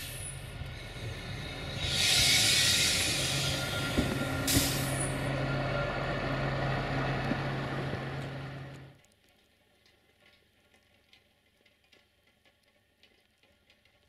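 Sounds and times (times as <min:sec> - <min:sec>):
diesel train rumbling: 0:00.0 - 0:09.0
faint ticks: 0:09.0 - 0:14.0.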